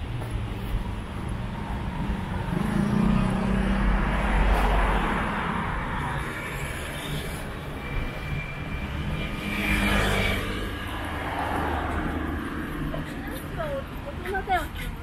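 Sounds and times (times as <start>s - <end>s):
passing vehicle engine drone: 1.6s - 13.1s.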